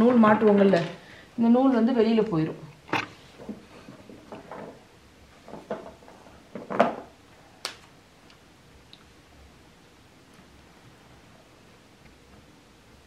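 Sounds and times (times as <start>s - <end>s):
small objects knocking on wooden table: 5.5s - 7.1s.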